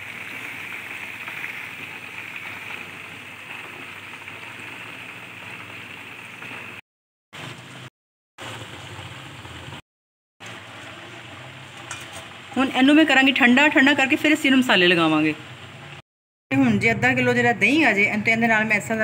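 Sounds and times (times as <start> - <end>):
meat deep-frying in sizzling oil: 0.0 - 6.8, 7.4 - 9.8, 10.4 - 16.0.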